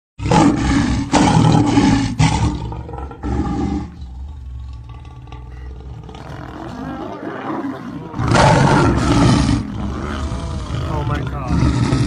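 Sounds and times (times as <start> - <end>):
lions roaring: 0.2 - 12.0.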